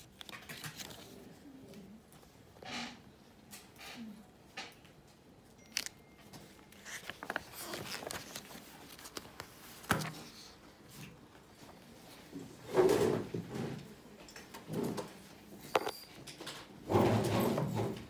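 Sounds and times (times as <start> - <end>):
paper rustling and crinkling: 0.0 - 1.4, 6.5 - 10.6.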